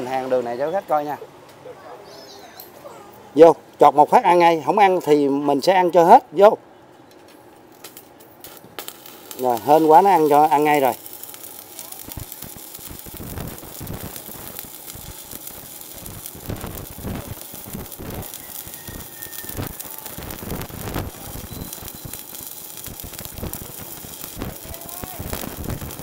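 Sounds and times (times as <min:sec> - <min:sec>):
welding arc crackling: 0:07.6 - 0:26.0.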